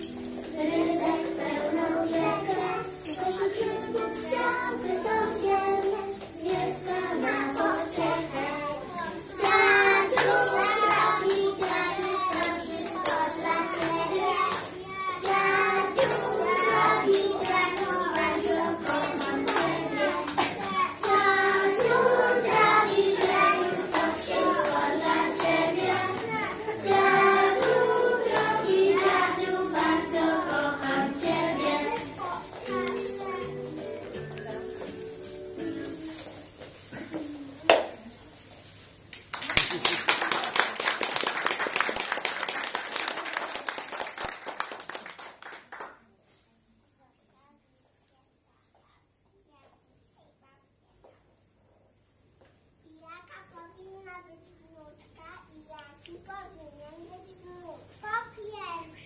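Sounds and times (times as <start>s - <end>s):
children singing: 0.0s - 33.8s.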